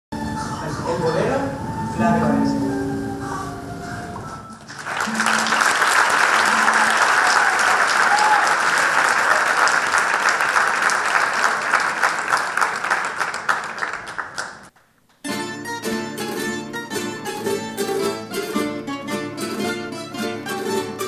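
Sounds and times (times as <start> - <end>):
audience applauding: 4.6 - 14.8.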